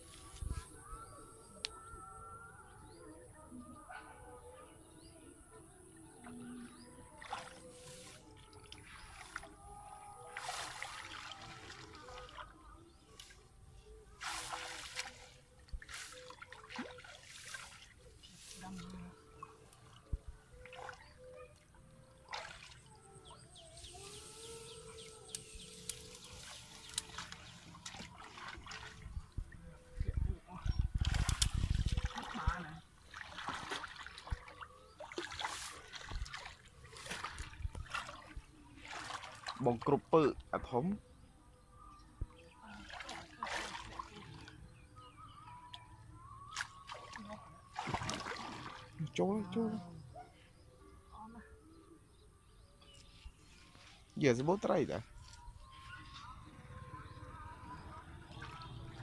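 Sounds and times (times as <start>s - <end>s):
water sloshing and trickling: 5.8s - 59.0s
hands rustling through grass: 7.6s - 8.4s, 10.4s - 12.2s, 14.2s - 18.9s, 23.7s - 28.6s.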